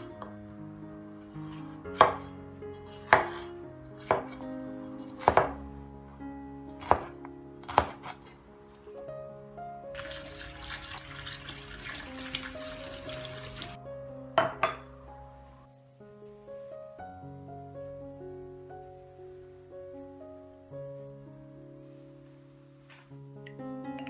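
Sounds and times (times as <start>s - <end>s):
cleaver chopping on wooden board: 5.2s - 5.6s, 6.8s - 8.1s
water running from a tap: 10.0s - 13.8s.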